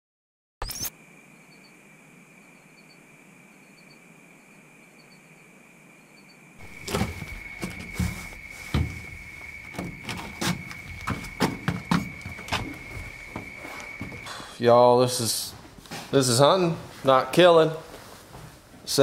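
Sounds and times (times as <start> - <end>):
faint high chirps: 0.6 - 6.6
knocks of someone shifting on floor: 6.6 - 14.3.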